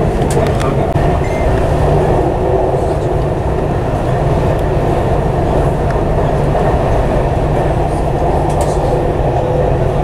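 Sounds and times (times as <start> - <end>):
train running on track: 0.0 - 10.0.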